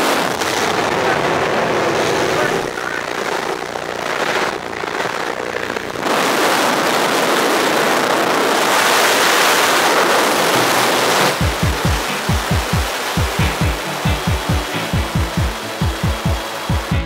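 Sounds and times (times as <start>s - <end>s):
plane engine: 8.6s - 17.0s.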